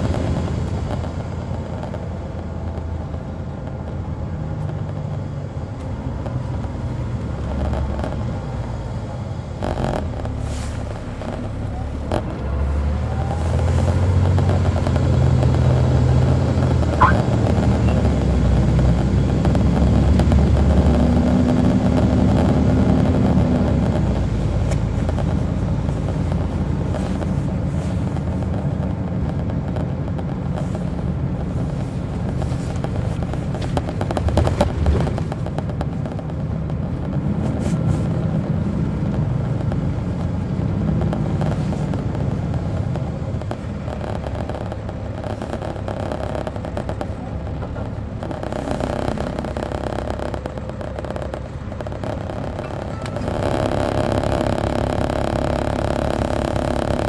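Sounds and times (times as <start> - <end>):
bus diesel engine: 0.0 - 57.0
rattling clatter: 13.3 - 57.0.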